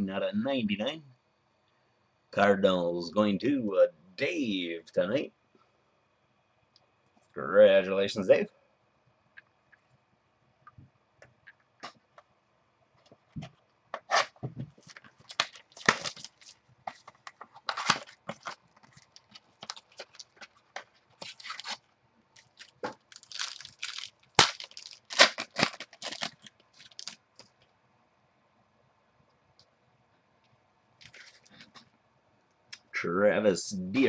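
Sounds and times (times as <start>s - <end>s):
foil wrapper crinkling and tearing: 14.9s - 27.2s.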